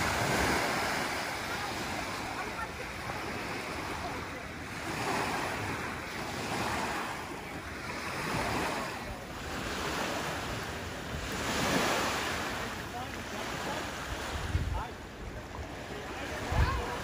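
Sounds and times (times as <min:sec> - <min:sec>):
small waves washing onto shore: 0:00.0 - 0:17.0
wind buffeting microphone: 0:14.2 - 0:17.0.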